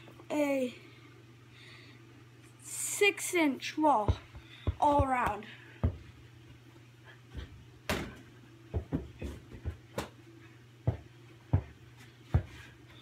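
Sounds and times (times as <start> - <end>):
basketball bouncing thuds: 4.0 - 6.1, 7.9 - 10.2, 10.8 - 12.6.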